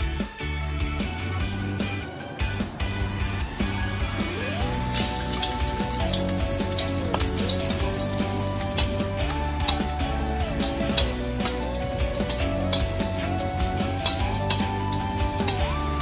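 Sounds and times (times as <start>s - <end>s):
background music: 0.0s - 16.0s
garlic sizzling in hot oil: 4.7s - 16.0s
spatula clicking against a pan: 8.7s - 10.0s, 10.6s - 15.7s.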